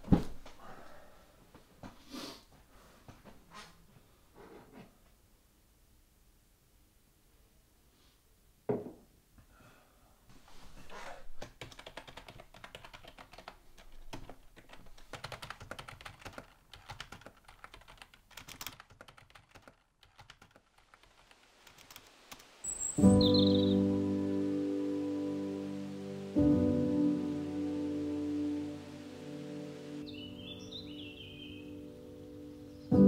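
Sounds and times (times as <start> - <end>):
computer keyboard typing: 11.4 - 22.5.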